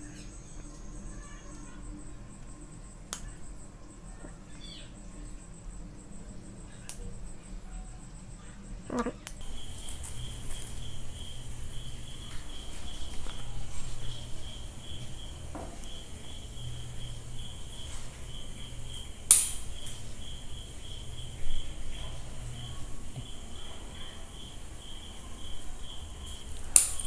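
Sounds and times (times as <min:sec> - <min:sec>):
cricket chirping: 0:00.0 - 0:27.0
loud sharp click: 0:19.3 - 0:19.6.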